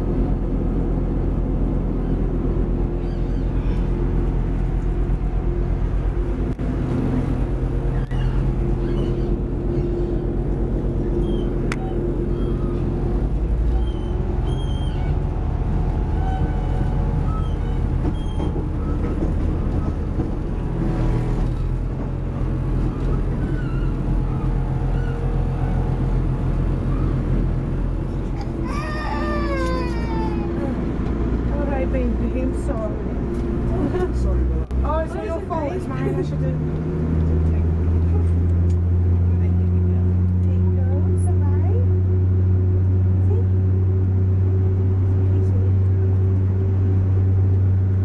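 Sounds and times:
train rumbling from inside: 0.0s - 48.0s
faint high squeaks: 7.9s - 10.1s, 11.1s - 13.0s, 13.7s - 15.2s, 16.2s - 19.2s, 22.8s - 25.8s.

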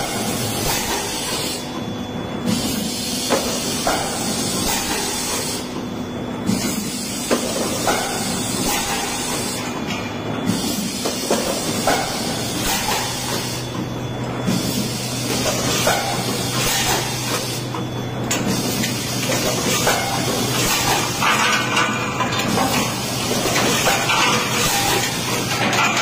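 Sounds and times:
machine clacks: 15.4s - 26.0s.

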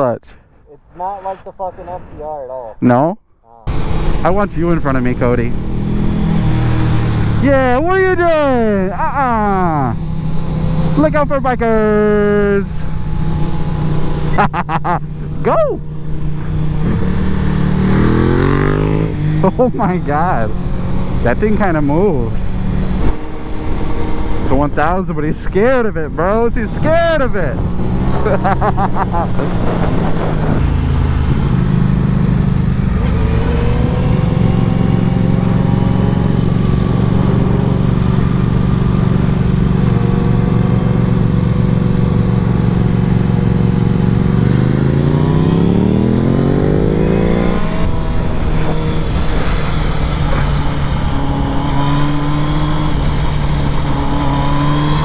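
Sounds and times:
motorcycle engines running: 3.5s - 55.0s
rushing wind: 15.0s - 55.0s.

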